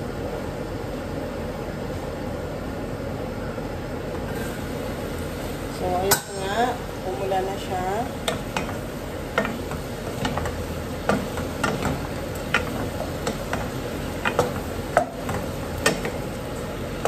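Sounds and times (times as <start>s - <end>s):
food sizzling in pot: 4.2s - 17.0s
wooden spoon knocking pot: 8.2s - 16.3s.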